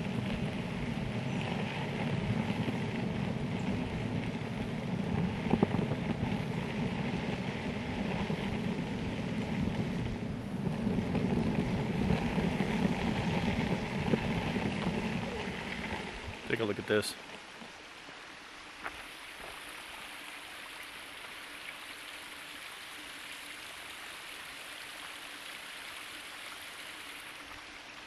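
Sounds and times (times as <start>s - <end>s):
wind on microphone: 0.0s - 17.0s
wheels rolling over gravel: 0.0s - 17.8s.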